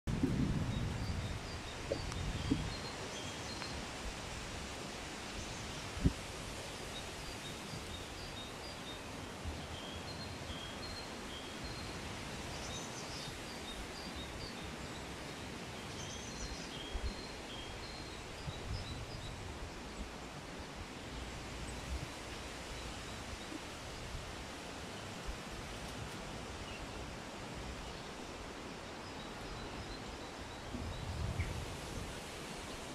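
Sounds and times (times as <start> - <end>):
wind buffeting microphone: 0.1 - 4.6, 30.7 - 32.9
steady hiss: 0.1 - 32.9.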